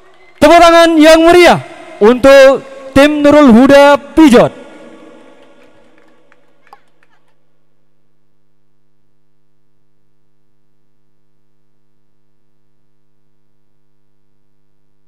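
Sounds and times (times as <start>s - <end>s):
electrical mains hum: 7.3s - 15.0s.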